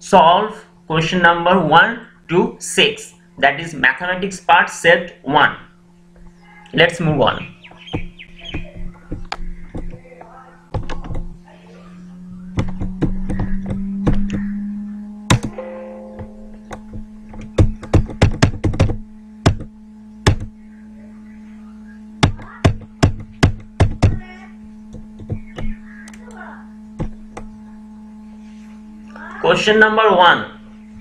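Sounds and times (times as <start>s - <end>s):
steady low hum: 0.0s - 31.0s
sharp clicks and knocks: 7.8s - 11.4s, 12.5s - 14.6s, 15.3s - 20.6s, 22.2s - 24.2s, 24.9s - 26.4s, 27.0s - 27.6s.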